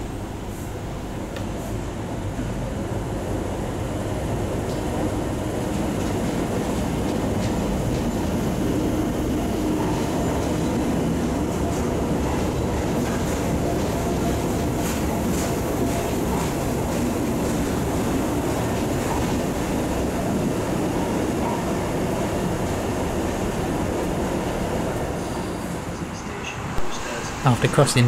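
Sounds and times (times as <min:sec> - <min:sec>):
faint train whine: 0:00.0 - 0:28.0
train rumbling: 0:00.0 - 0:28.0.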